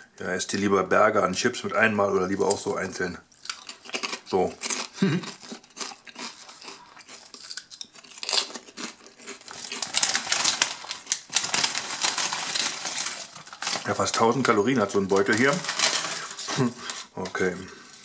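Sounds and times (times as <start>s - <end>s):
plastic bag crinkling: 5.2s - 18.0s.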